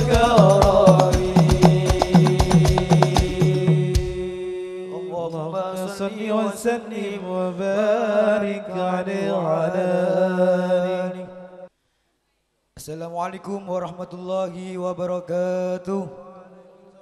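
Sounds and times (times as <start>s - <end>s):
drum strikes: 0.0s - 4.5s
man singing: 0.0s - 11.5s, 12.8s - 16.8s.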